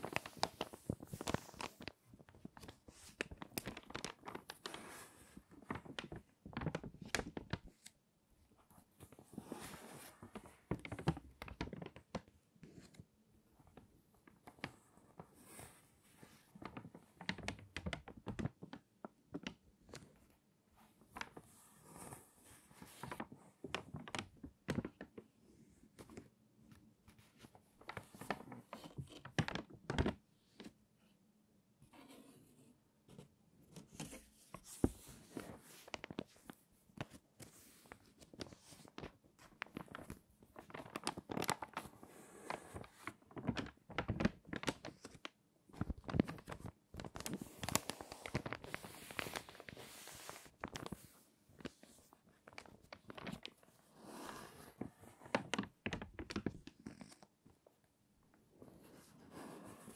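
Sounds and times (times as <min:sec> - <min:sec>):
stiff pages crackling: 0:00.0 - 0:07.9, 0:33.9 - 0:57.3.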